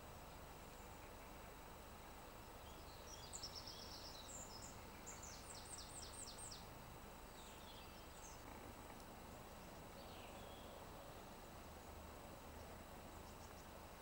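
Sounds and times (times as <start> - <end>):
low background rumble: 0.0 - 14.0
small songbird singing: 0.0 - 14.0.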